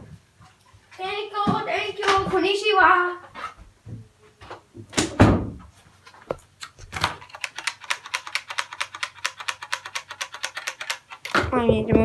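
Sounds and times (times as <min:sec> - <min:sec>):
rapid mechanical clicks: 0:07.0 - 0:11.4.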